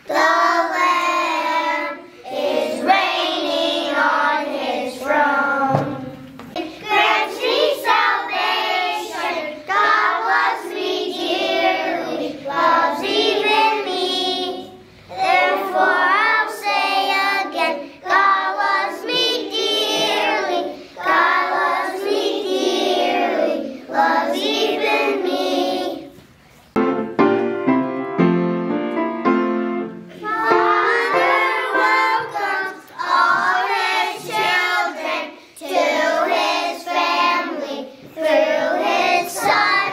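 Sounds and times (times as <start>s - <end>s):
children's choir singing: 0.0s - 27.0s, 29.8s - 39.9s
instrumental passage in stepping notes: 26.7s - 33.3s.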